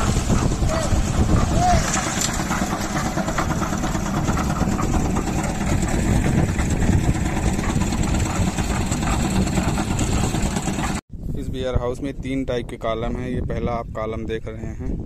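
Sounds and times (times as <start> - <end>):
concrete mixer running: 0.0 - 11.0.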